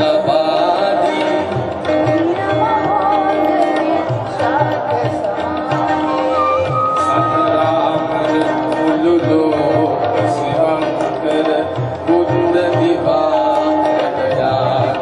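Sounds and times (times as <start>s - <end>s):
hand-drum beat: 0.0s - 15.0s
man singing through pa system: 0.0s - 15.0s.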